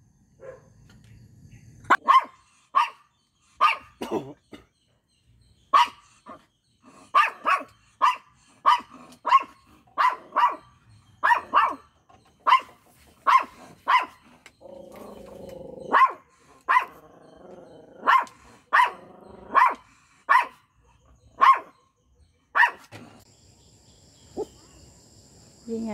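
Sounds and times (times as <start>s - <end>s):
small dog barking sharply: 1.9s - 3.0s, 7.2s - 10.6s, 21.4s - 21.7s, 22.6s - 22.8s
dog growling low: 14.4s - 19.6s.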